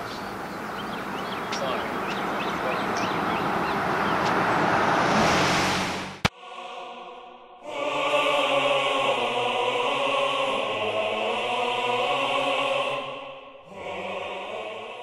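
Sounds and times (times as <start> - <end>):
choir holding a chord: 6.3 - 15.0.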